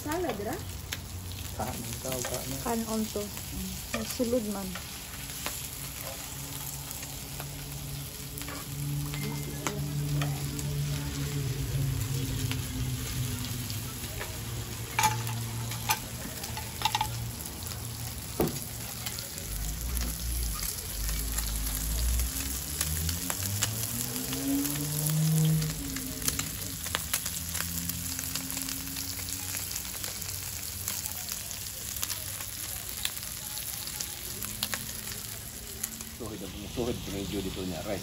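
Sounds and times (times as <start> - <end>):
meat sizzling on a grill pan: 0.0 - 38.0
tongs clicking against pan: 14.9 - 17.3.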